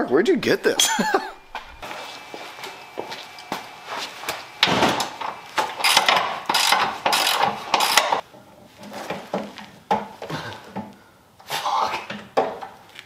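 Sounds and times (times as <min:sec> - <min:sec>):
hand tools clanking on metal: 0:04.6 - 0:08.2.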